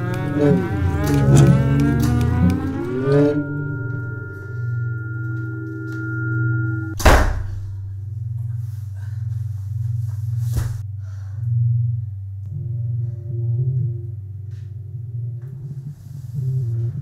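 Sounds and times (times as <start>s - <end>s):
low droning film score music: 0.0s - 17.0s
loud thunk: 7.0s - 7.6s.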